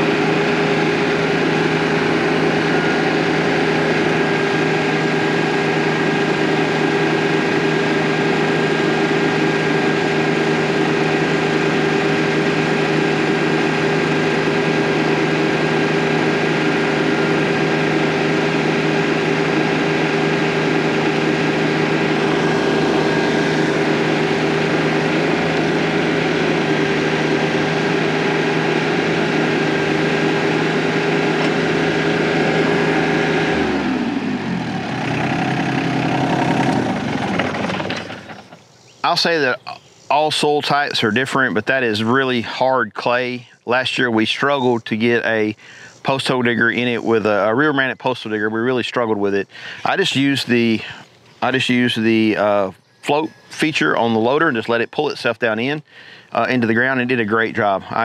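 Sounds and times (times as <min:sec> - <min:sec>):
hydraulic auger drilling: 0:00.0 - 0:38.6
tractor diesel engine running: 0:00.0 - 0:58.0.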